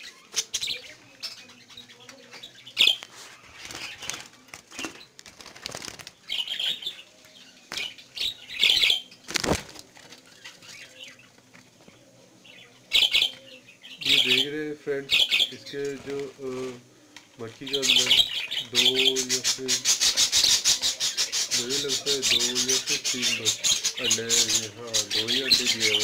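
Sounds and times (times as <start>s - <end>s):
budgerigars chirping: 0.0s - 4.2s, 6.2s - 9.2s, 12.5s - 16.3s, 17.6s - 26.0s
wings flapping: 3.1s - 6.4s, 9.2s - 10.7s.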